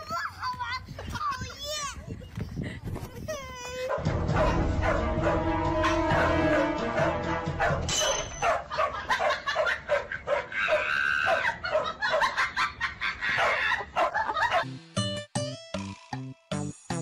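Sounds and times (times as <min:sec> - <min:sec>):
dog barking: 0:03.9 - 0:05.4, 0:07.6 - 0:12.4, 0:13.4 - 0:14.7
dog drawn-out cry: 0:07.6 - 0:12.3.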